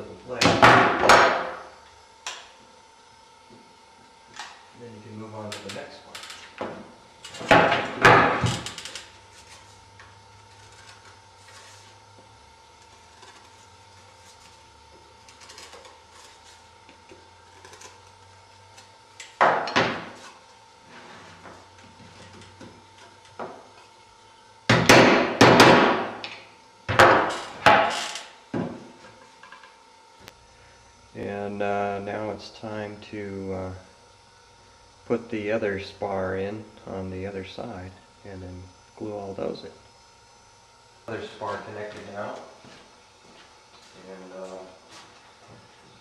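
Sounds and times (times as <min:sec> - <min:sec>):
sharp knocks on wood: 0:24.7 - 0:26.2.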